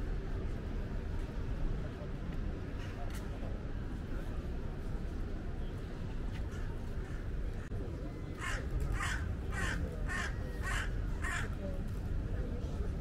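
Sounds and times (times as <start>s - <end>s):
low city rumble: 0.0s - 13.0s
crow cawing: 8.4s - 11.5s.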